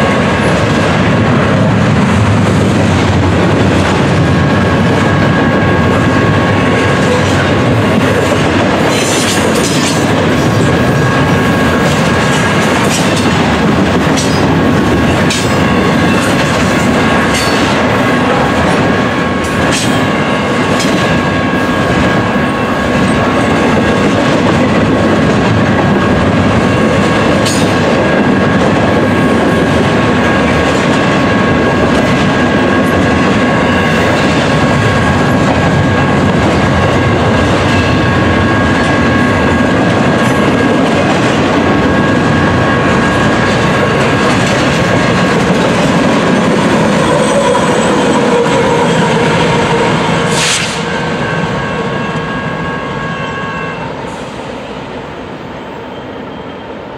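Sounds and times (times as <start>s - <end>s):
diesel locomotive engine: 0.0s - 56.9s
train wheels rumbling on rail: 0.0s - 56.9s
high-pitched whine: 45.9s - 56.7s.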